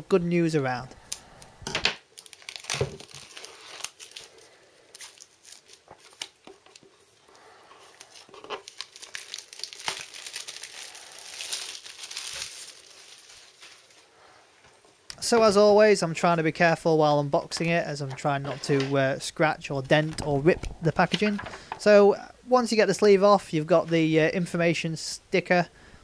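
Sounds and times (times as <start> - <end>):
plastic shrink-wrap crinkling and tearing: 2.1 - 6.9, 7.8 - 14.1.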